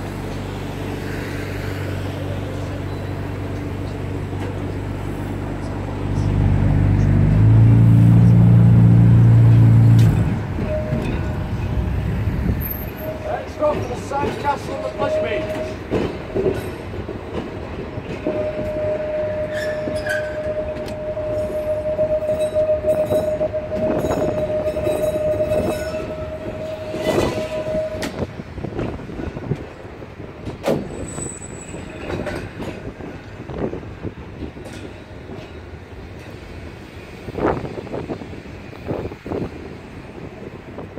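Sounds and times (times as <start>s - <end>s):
track knocks and clatter: 3.4s - 38.1s
high-pitched wheel squeal: 10.2s - 13.8s, 14.4s - 15.8s, 18.2s - 28.3s.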